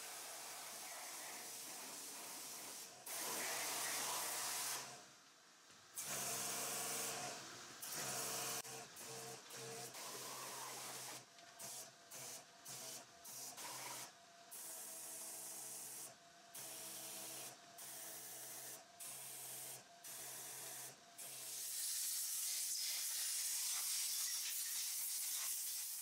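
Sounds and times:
pressure washer spraying water: 0.0s - 4.8s.

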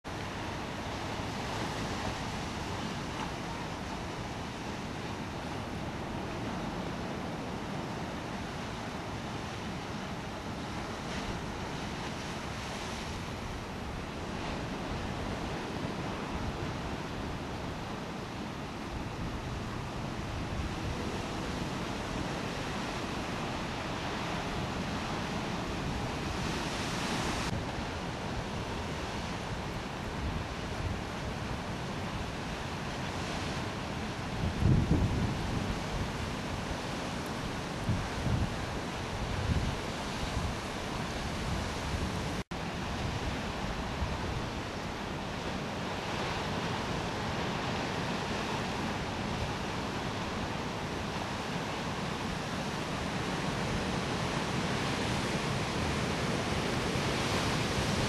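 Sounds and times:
ocean surf breaking: 0.2s - 58.0s
wind on microphone: 0.3s - 58.0s
wind buffeting microphone: 34.2s - 45.1s.

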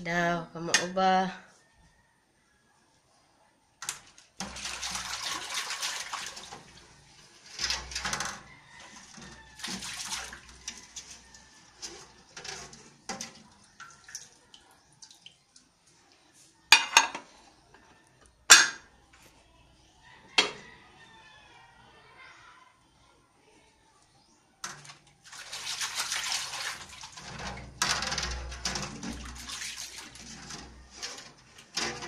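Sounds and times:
scrubbing dishes in soapy water: 4.3s - 15.6s, 24.7s - 32.0s
dishes clattering together: 16.7s - 17.3s, 18.5s - 18.9s.

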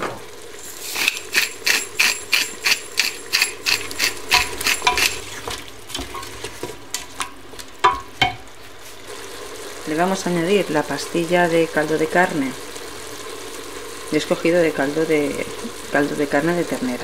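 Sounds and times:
spice grinder clicking: 0.8s - 5.2s.

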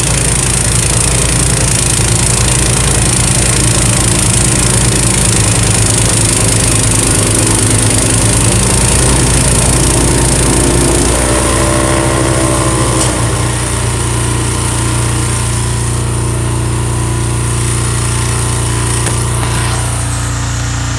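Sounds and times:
snowblower engine running: 0.0s - 20.9s.

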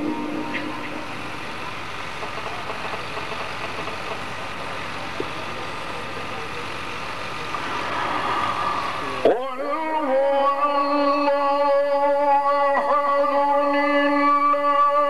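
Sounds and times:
background hiss and hum: 0.0s - 15.0s.

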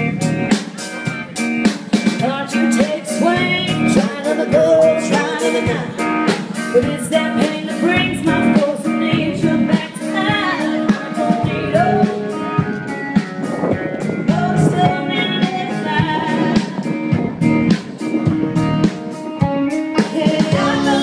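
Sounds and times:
drum kit beat: 0.0s - 21.0s
electric guitars: 0.0s - 21.0s
person singing: 2.2s - 12.7s, 14.1s - 17.1s, 19.8s - 21.0s.

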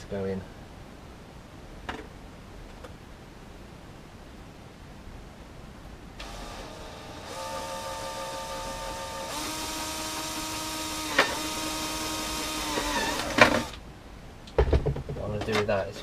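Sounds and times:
cordless drill motor whining: 6.2s - 13.8s
loud knock: 14.6s - 15.3s.

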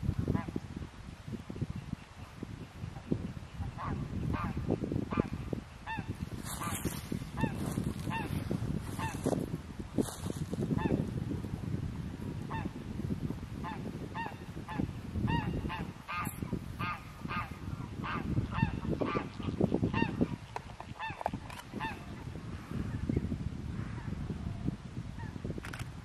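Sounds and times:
geese honking: 5.9s - 8.4s.

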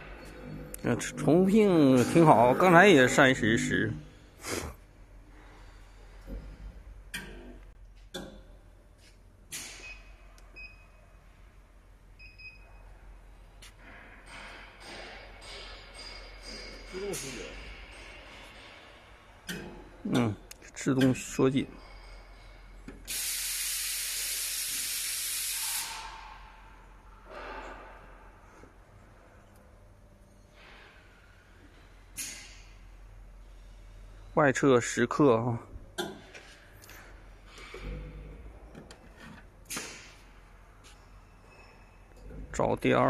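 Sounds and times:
compressed air hissing: 4.4s - 4.8s, 23.1s - 26.6s.

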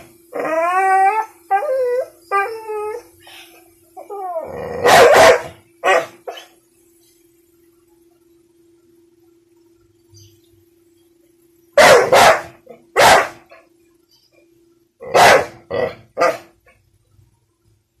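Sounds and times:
faint steady hum: 0.0s - 18.0s
dog barking: 4.8s - 6.5s, 11.8s - 13.4s, 15.0s - 16.5s.

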